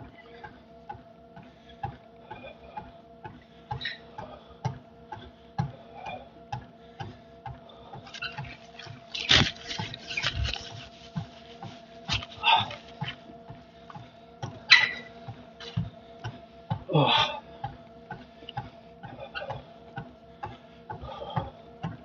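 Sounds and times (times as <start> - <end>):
treadmill motor hum: 0.0 - 22.0
towel rubbing face: 8.1 - 13.1
footfalls on treadmill: 20.5 - 22.0.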